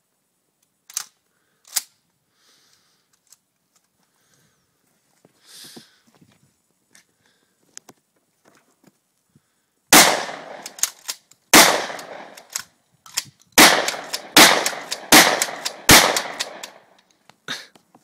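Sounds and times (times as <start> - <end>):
gunshots with long echo: 9.9 - 10.8, 11.5 - 12.5, 13.6 - 16.9.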